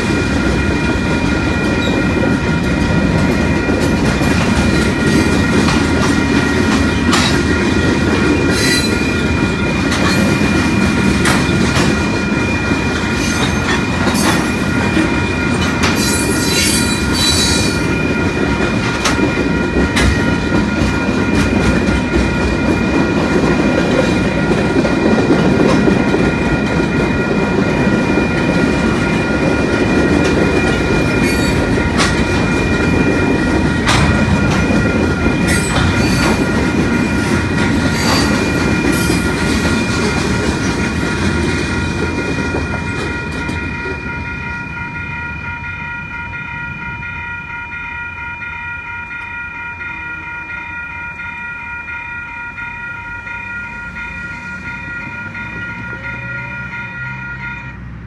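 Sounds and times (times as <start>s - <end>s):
freight train rumble: 0.0s - 58.0s
train wheel clicks: 2.8s - 16.2s, 18.3s - 27.1s, 28.4s - 44.0s
high wheel squeal: 8.5s - 9.4s, 16.0s - 17.9s.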